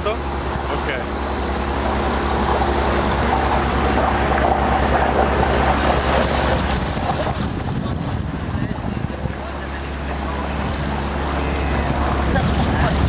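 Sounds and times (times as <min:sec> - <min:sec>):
outboard motor running: 0:00.0 - 0:13.0
water washing past hull: 0:00.0 - 0:13.0.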